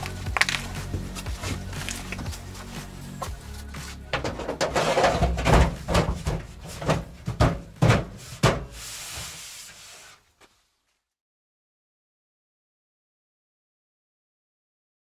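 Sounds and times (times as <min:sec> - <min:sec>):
irregular knocks and thuds: 0:04.1 - 0:08.8.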